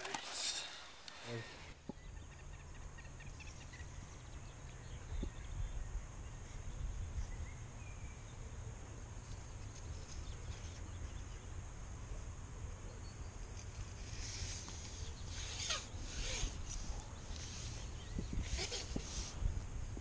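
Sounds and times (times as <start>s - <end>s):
wind rumbling on microphone: 4.9s - 7.6s, 16.0s - 20.0s.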